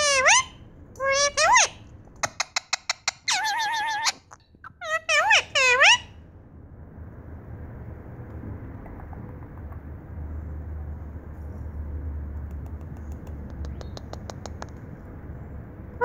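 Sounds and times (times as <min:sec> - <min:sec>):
low rumbling handling noise: 0:07.8 - 0:13.7
light clicks and taps: 0:12.4 - 0:14.9.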